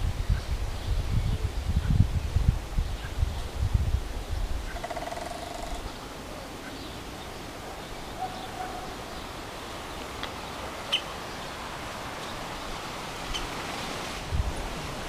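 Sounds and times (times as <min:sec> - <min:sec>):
steady outdoor hiss: 0:00.0 - 0:15.0.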